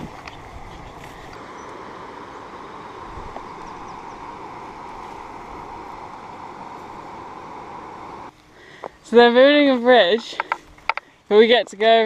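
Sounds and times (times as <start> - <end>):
shallow river rushing over stones: 1.3 - 8.3.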